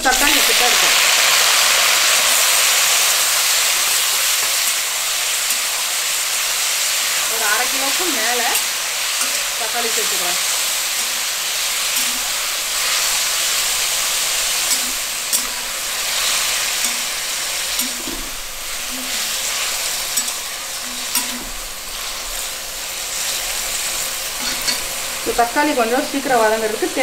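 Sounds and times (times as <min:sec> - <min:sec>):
vegetables sizzling in hot oil: 0:00.0 - 0:27.0
metal spatula scraping a pan: 0:07.2 - 0:25.2.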